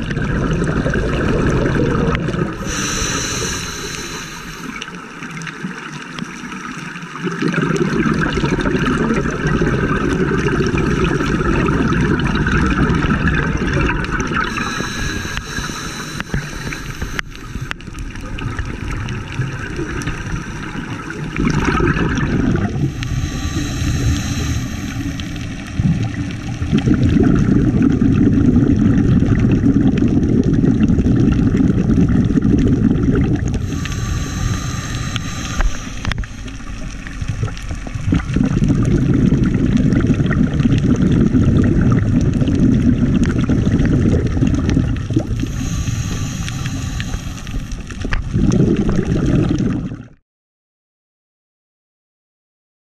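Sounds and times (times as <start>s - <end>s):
gurgling exhaled bubbles: 0.0s - 50.2s
hissing regulator inhalations: 2.3s - 5.0s, 14.4s - 18.1s, 19.7s - 25.8s, 33.5s - 37.1s, 45.3s - 48.1s.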